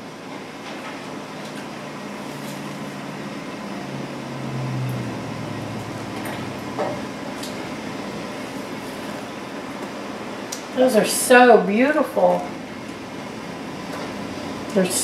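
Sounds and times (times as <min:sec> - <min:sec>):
kitchen hum: 0:00.0 - 0:15.0
low drone: 0:02.5 - 0:08.7.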